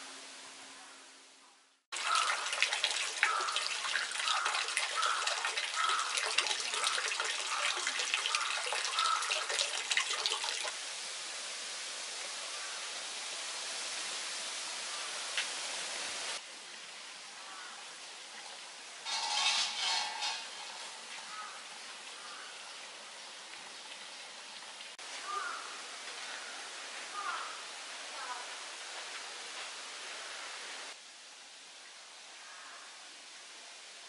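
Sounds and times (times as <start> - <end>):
water splashing into basin: 1.9 - 10.8.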